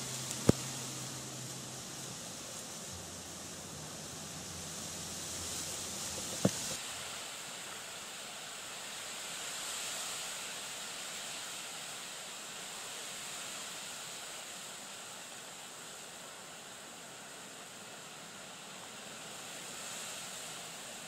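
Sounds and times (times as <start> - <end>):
water lapping: 0.0 - 6.8
wind: 0.0 - 21.0.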